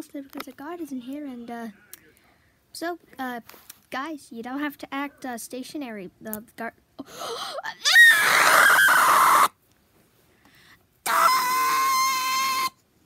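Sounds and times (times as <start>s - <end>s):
person screaming: 7.7s - 9.5s, 11.1s - 12.7s.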